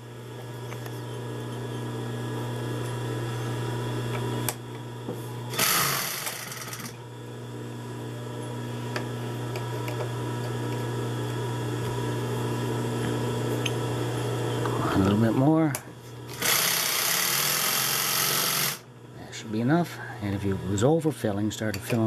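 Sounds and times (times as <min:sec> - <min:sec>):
sewing machine motor humming: 0:05.5 - 0:07.0, 0:16.3 - 0:18.9.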